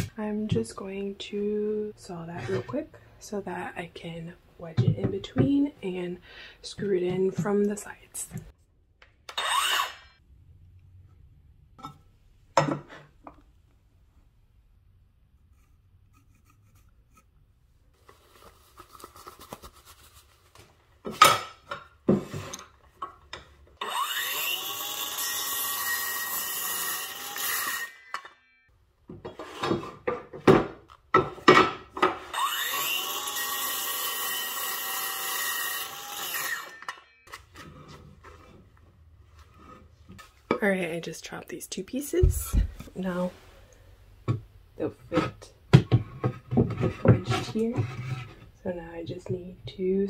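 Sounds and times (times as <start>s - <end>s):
circular saw cutting boards: 9.3s - 10.2s, 21.4s - 28.4s, 29.2s - 38.7s
boards and saw clattering: 29.1s - 37.1s.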